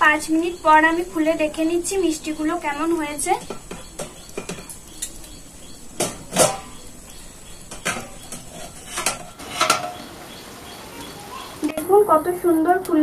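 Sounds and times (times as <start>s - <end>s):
steel tongs clanking on metal: 0.3s - 10.0s.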